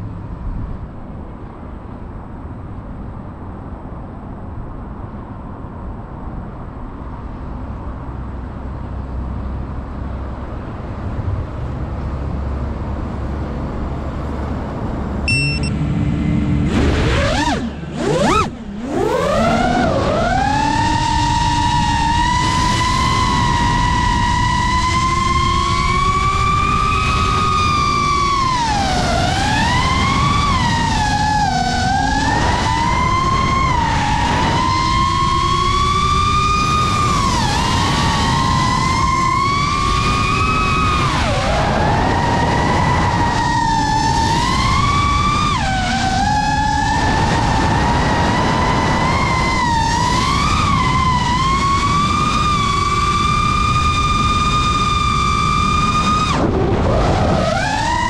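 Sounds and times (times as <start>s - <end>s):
quadcopter motors whining: 16.7s - 58.0s.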